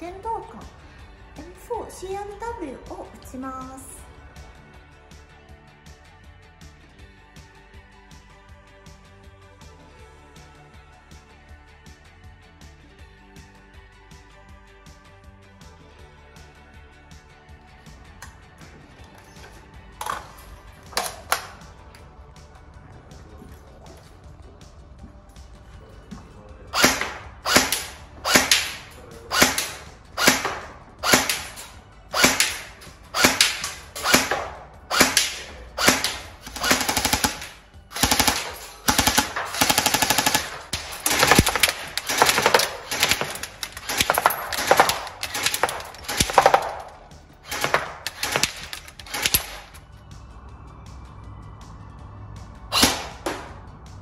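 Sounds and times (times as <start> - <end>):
airsoft gun firing: 26.8 - 49.8, 52.7 - 53.6.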